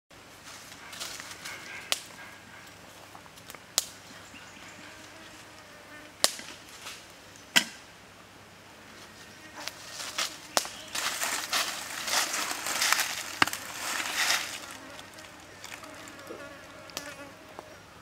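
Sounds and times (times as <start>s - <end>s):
dry wood cracking: 9.7s - 16.3s.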